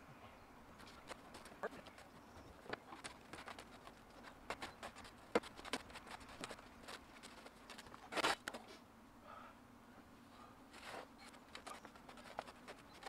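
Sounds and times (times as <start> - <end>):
shovel scraping soil: 7.2 - 8.7.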